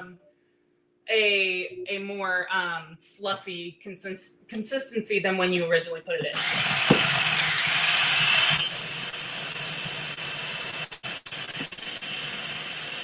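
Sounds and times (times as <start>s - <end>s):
hand blender whirring: 6.3s - 13.0s.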